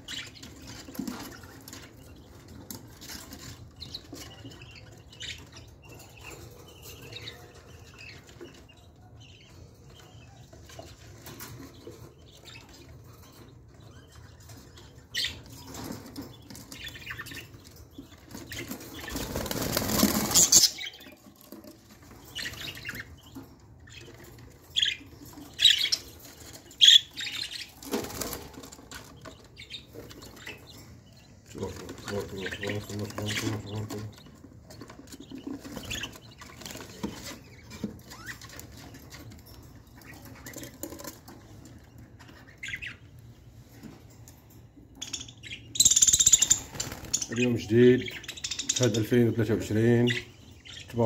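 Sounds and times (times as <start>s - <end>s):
budgerigars chirping: 0.0s - 43.3s, 44.9s - 51.0s.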